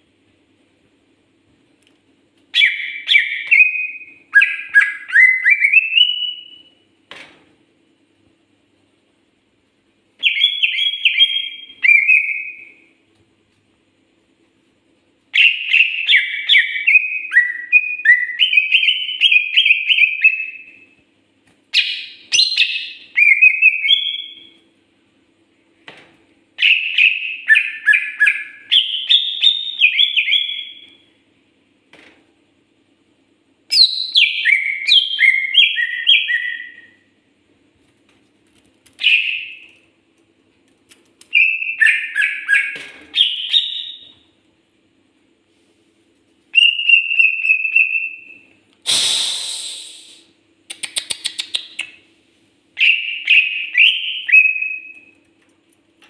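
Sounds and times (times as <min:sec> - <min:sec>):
bird singing whistled phrases: 0:02.6 - 0:06.7, 0:10.2 - 0:12.9, 0:15.4 - 0:20.8, 0:21.8 - 0:24.6, 0:26.6 - 0:31.0, 0:33.7 - 0:37.1, 0:39.0 - 0:39.8, 0:41.3 - 0:44.2, 0:46.6 - 0:48.4, 0:52.8 - 0:55.2.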